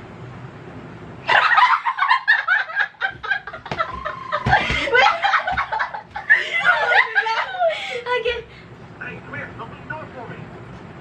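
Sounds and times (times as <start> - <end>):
women laughing and squealing: 1.3 - 8.4
cushions thumping: 3.0 - 7.0.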